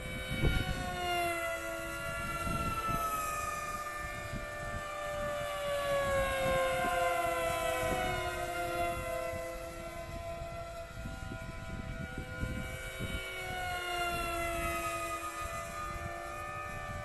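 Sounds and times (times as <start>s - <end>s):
electric motors whining: 0.0s - 17.0s
wind buffeting microphone: 0.0s - 17.0s.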